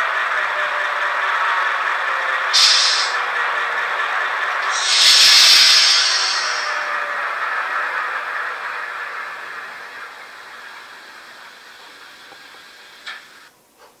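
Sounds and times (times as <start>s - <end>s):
steady hiss: 2.5s - 3.2s, 4.6s - 6.8s, 10.4s - 13.6s.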